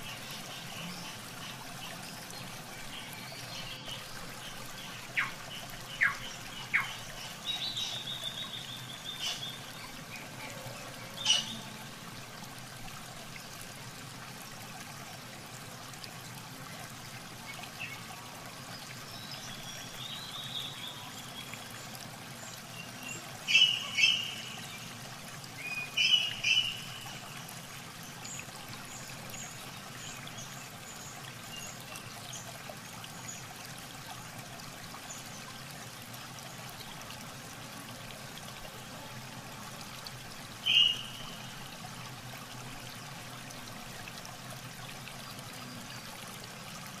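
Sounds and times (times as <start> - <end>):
water trickling: 0.0 - 47.0
birds chirping: 2.8 - 10.0, 22.8 - 25.0, 25.6 - 27.2, 40.6 - 41.6.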